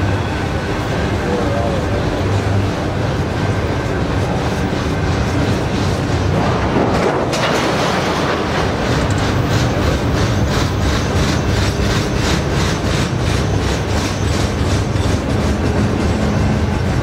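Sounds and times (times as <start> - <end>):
steel wheels rumbling on rail: 0.0 - 17.0
train wheels clickety-clack: 3.6 - 17.0.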